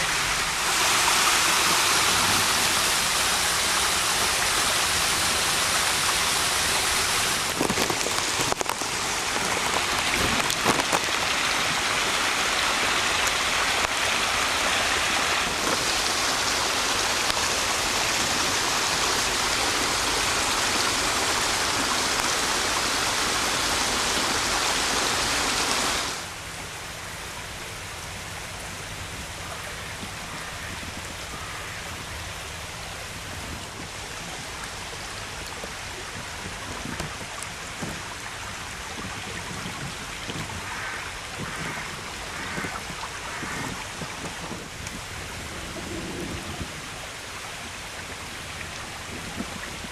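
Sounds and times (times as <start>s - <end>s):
water rushing down stream: 0.0s - 49.9s.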